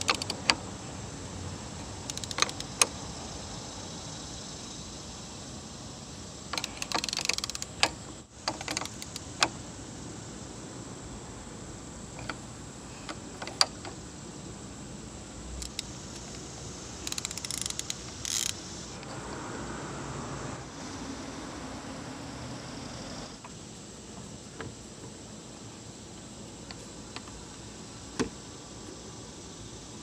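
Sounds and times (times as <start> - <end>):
wrench ratchet clicking: 0.0 - 0.6, 2.0 - 3.0, 6.5 - 9.6, 15.6 - 16.4, 17.0 - 18.6.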